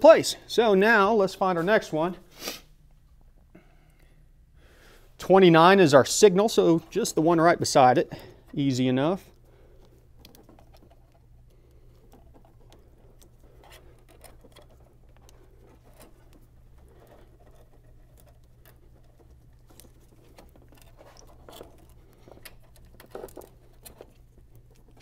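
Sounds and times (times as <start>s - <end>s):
steady low hum: 0.2s - 25.0s
wires rustling: 5.0s - 25.0s.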